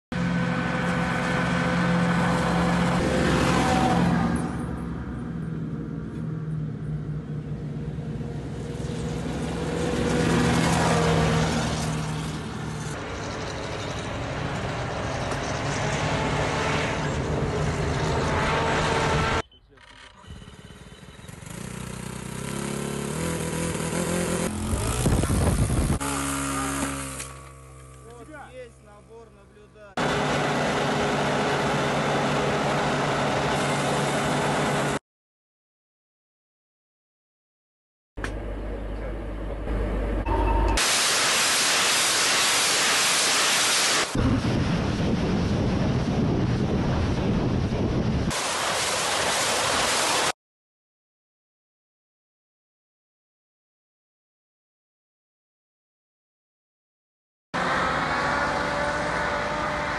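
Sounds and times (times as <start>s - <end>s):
heavy truck engines: 0.2s - 29.3s, 29.9s - 35.0s, 38.2s - 40.8s, 57.6s - 59.9s.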